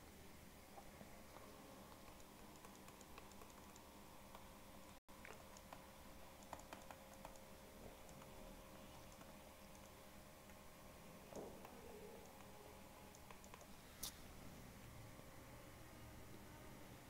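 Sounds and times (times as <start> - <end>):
low electrical hum: 0.0 - 17.0
stylus tapping on tablet: 6.4 - 7.4.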